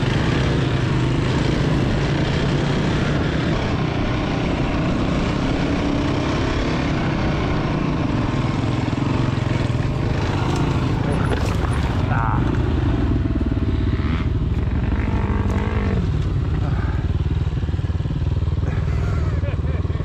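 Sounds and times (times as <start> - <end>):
dirt bike engine running: 0.0 - 20.0.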